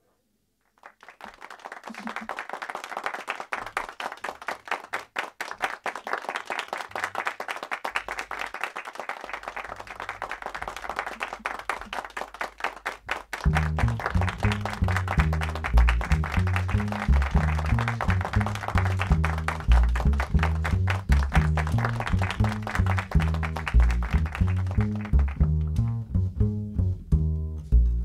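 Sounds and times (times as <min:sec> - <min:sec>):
audience applauding: 0:00.6 - 0:25.9
band playing with low bass: 0:13.4 - 0:28.0.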